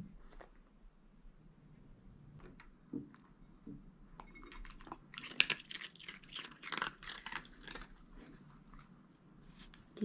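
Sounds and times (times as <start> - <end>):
dog crunching hard food: 4.6 - 8.4.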